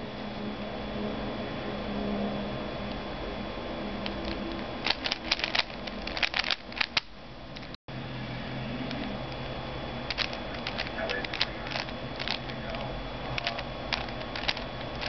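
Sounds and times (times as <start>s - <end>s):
low hum: 0.0s - 15.0s
puzzle cube plastic clicks: 4.0s - 7.7s, 10.1s - 12.6s, 13.4s - 15.0s.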